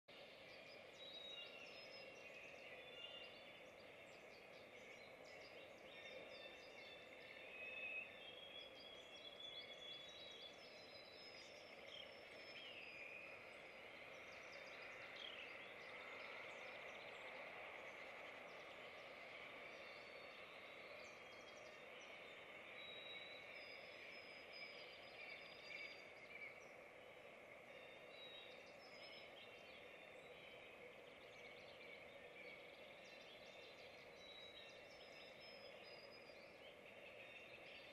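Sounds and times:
songbirds chirping: 0:00.1 - 0:37.9.

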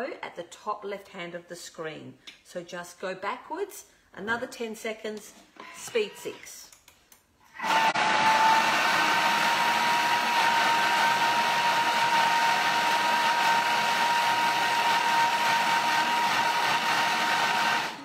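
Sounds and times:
food processor motor whine: 0:07.5 - 0:18.0
vegetables churning: 0:07.6 - 0:18.0.

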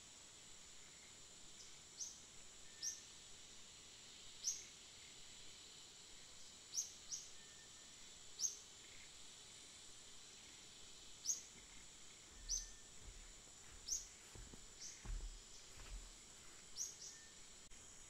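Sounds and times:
insect drone: 0:00.0 - 0:18.0
bird chirps: 0:11.2 - 0:13.2.

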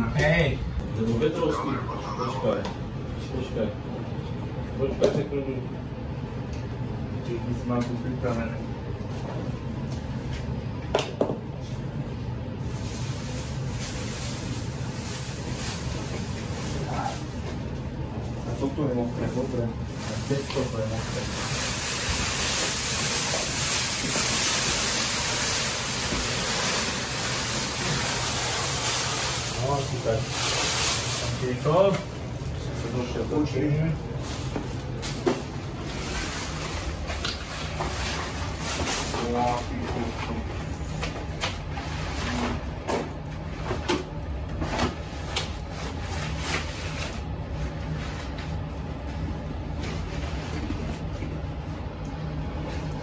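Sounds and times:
low room hum: 0:00.0 - 0:53.0
foil blanket crinkling: 0:12.6 - 0:17.4, 0:18.6 - 0:33.5
towels and plastic rustling: 0:12.6 - 0:51.3.

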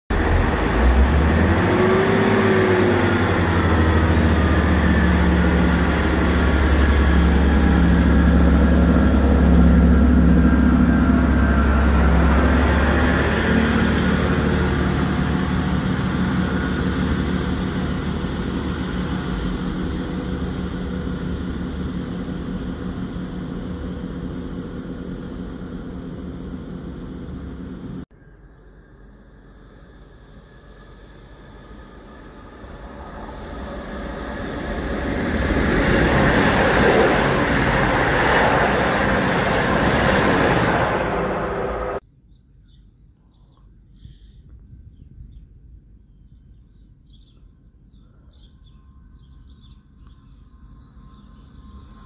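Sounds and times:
train diesel engines humming: 0:00.1 - 0:28.0, 0:29.0 - 0:42.0.

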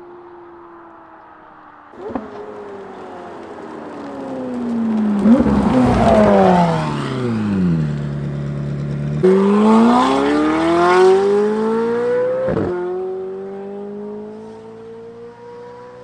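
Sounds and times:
sports car engine accelerating: 0:00.0 - 0:16.0.

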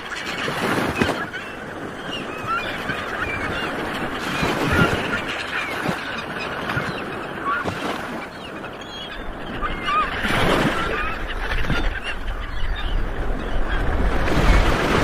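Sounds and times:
gulls squawking: 0:00.0 - 0:15.0
wind on microphone: 0:09.2 - 0:15.0.

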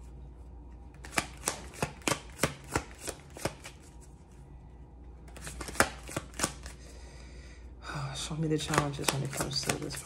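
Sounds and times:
cards being shuffled: 0:00.9 - 0:04.3, 0:05.2 - 0:06.8, 0:08.6 - 0:10.0.

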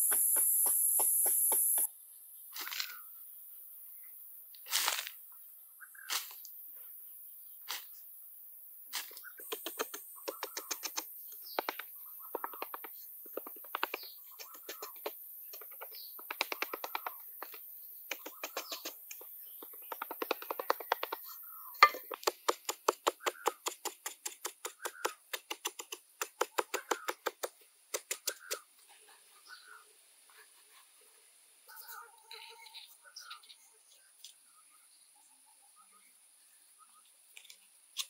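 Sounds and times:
hoe chopping into dry soil: 0:04.7 - 0:05.2, 0:08.9 - 0:21.1, 0:21.8 - 0:28.6.

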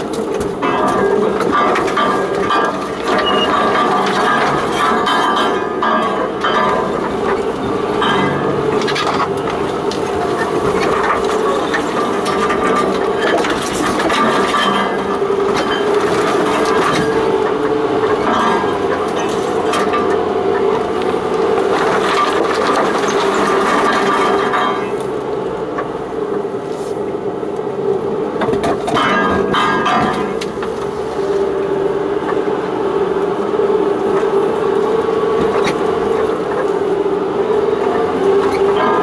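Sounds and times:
vehicle engine drone: 0:00.0 - 0:39.0.

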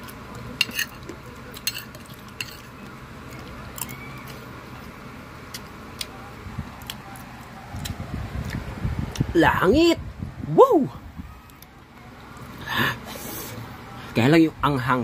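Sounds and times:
chewing crispy pork crackling: 0:00.0 - 0:09.4.

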